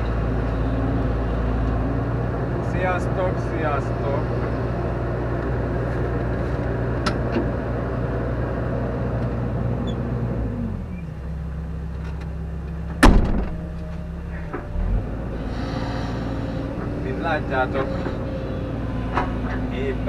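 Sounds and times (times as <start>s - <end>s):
excavator diesel engine running: 0.0s - 20.0s
sharp clunk: 13.0s - 13.7s.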